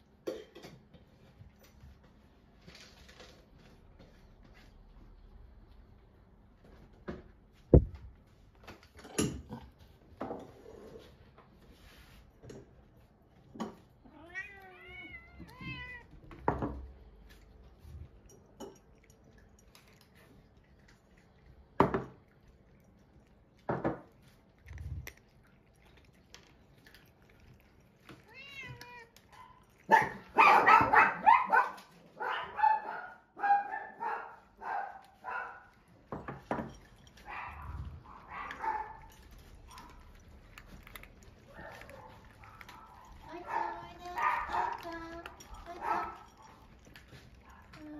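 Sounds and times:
cats meowing: 0:14.0 - 0:16.4, 0:28.1 - 0:29.5.

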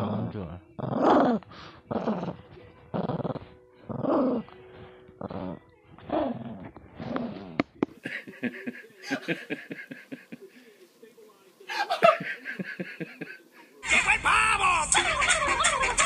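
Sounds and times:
small dog growling: 0:00.0 - 0:04.6, 0:05.2 - 0:07.7.

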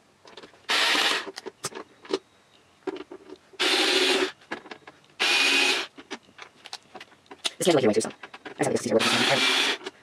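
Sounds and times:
cordless screwdriver rasping: 0:09.0 - 0:09.9.

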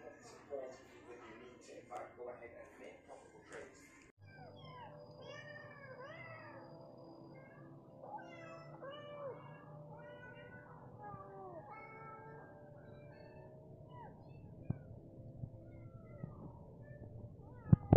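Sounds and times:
cats meowing from a speaker: 0:07.3 - 0:13.5.

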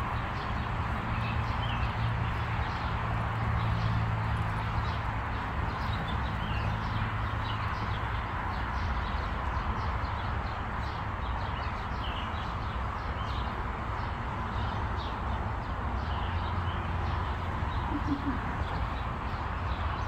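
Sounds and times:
distant traffic: 0:00.0 - 0:20.0
bird chirps: 0:17.8 - 0:18.9.

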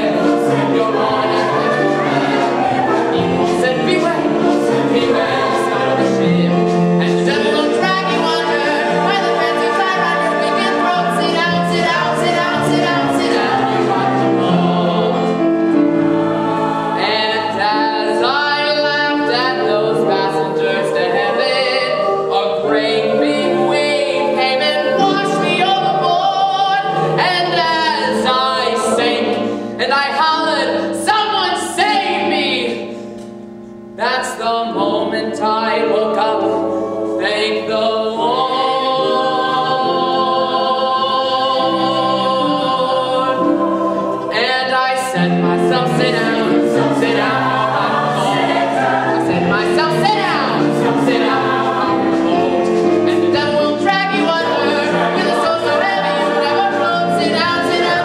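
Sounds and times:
man singing lead: 0:00.0 - 0:15.2, 0:17.0 - 0:32.9, 0:44.2 - 0:58.0
chorus singing: 0:00.0 - 0:33.1, 0:34.0 - 0:58.0
musical accompaniment: 0:00.0 - 0:58.0.

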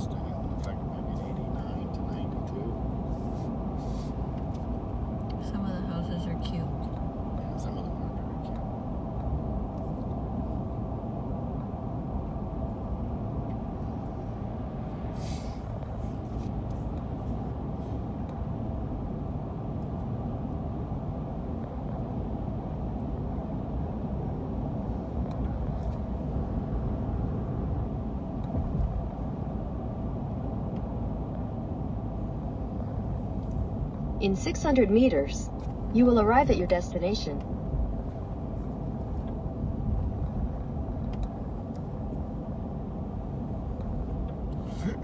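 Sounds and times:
road and engine noise in car: 0:00.0 - 0:45.0
brief hiss: 0:03.3 - 0:04.2, 0:15.1 - 0:15.6.

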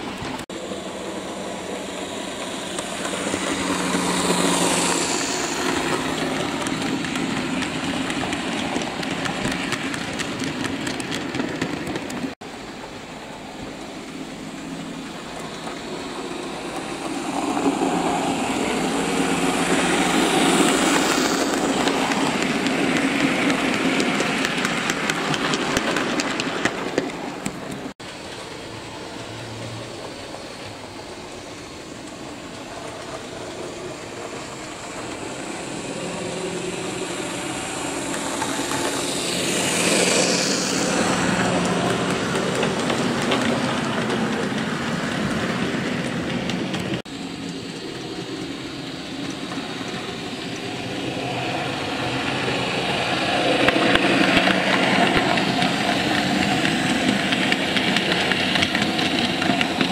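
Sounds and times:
wagon wheels rolling on track: 0:02.2 - 0:12.4, 0:15.6 - 0:59.9
model train motor whirring: 0:31.5 - 0:46.9.

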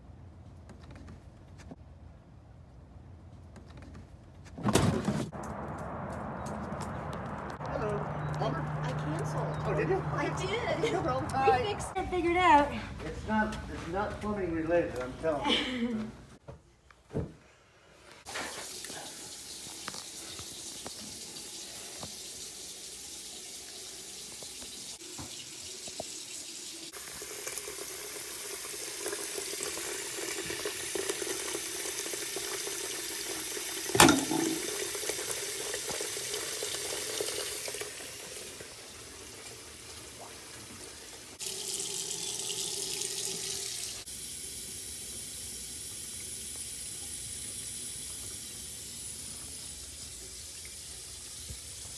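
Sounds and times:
tap water running into sink: 0:18.3 - 0:51.9.

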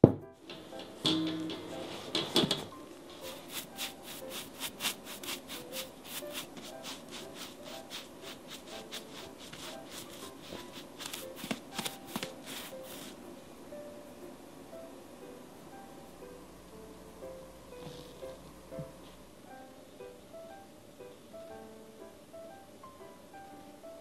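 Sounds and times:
pastry brush strokes: 0:03.0 - 0:13.5.

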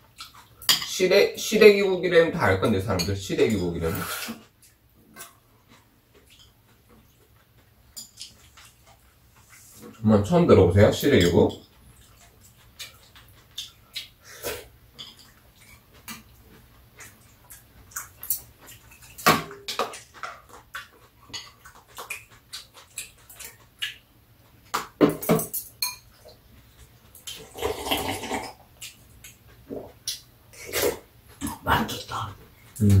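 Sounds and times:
metal utensils clinking on bowls: 0:10.9 - 0:11.7, 0:25.0 - 0:26.2
person slurping soup: 0:27.4 - 0:28.6.

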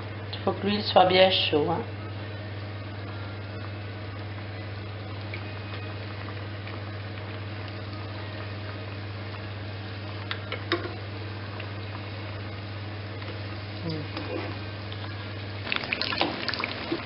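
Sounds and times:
food sizzling in hot oil: 0:04.4 - 0:17.0.

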